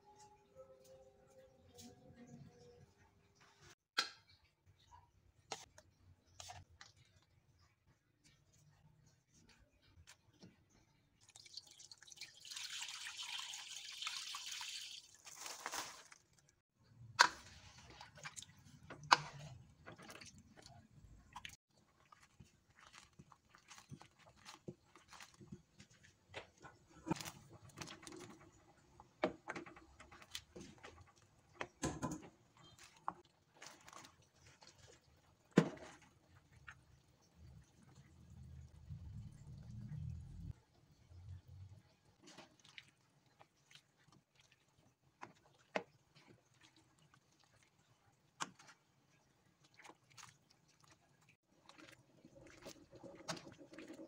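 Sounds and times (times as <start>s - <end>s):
wooden spatula stirring in metal pan: 16.8s - 38.0s, 41.9s - 54.0s.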